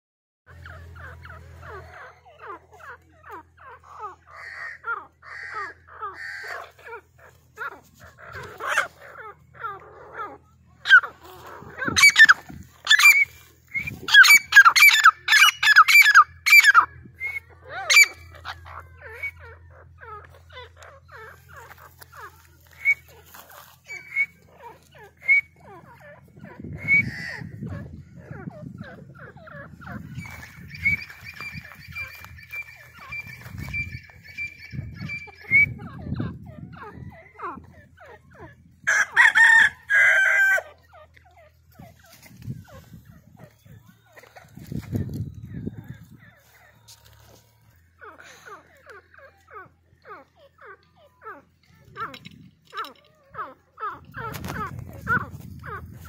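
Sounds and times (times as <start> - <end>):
chickens calling: 0.5 - 56.0
francolin calling: 0.6 - 45.7
rooster calling: 4.0 - 7.2, 7.8 - 25.9, 26.5 - 41.7.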